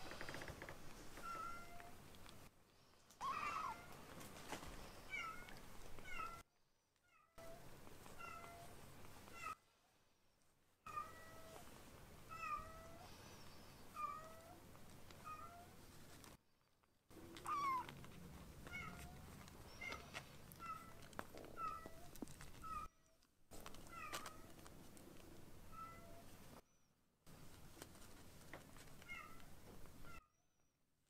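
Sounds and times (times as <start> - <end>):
kittens mewing: 3.2 - 3.9, 17.2 - 22.9.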